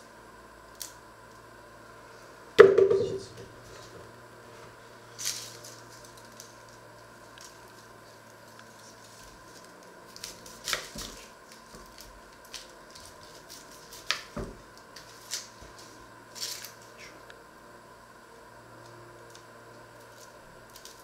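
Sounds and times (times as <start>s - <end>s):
onion skins crackling: 5.1s - 17.1s, 19.3s - 21.0s.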